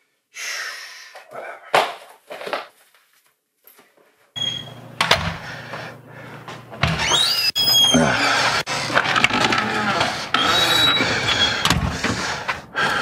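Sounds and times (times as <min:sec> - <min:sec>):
door hinges squeaking: 0:04.4 - 0:05.4, 0:06.7 - 0:12.5
steady low hum: 0:04.4 - 0:07.0.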